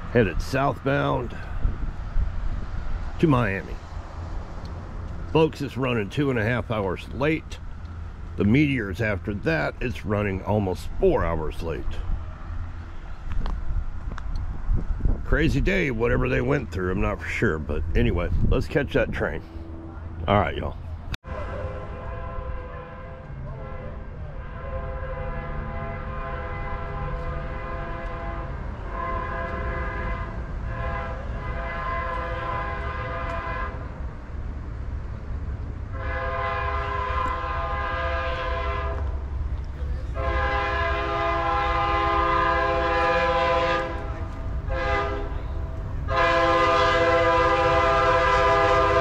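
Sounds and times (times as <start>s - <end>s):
train low rumble: 0.0s - 49.0s
locomotive air horn blasts: 21.6s - 34.0s, 35.9s - 39.1s, 40.0s - 49.0s.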